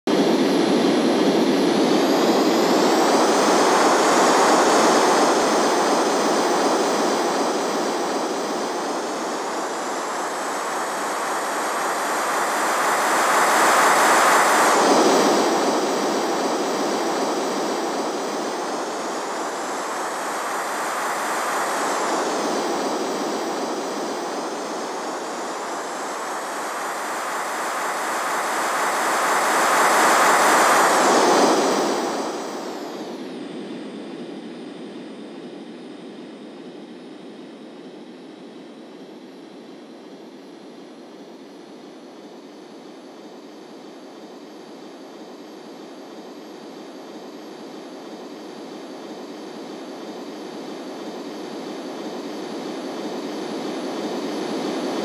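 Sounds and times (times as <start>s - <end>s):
model jet rush and whine: 0.1s - 55.0s.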